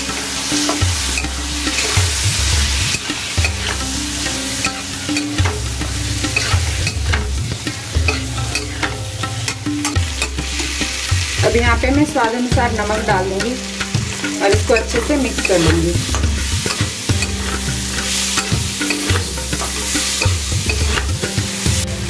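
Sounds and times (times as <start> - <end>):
oil sizzling: 0.0 - 22.0
spoon stirring and scraping: 0.6 - 11.1, 13.6 - 21.4
spoon clicking against pan: 4.6 - 5.6, 6.4 - 7.3, 13.4 - 21.1.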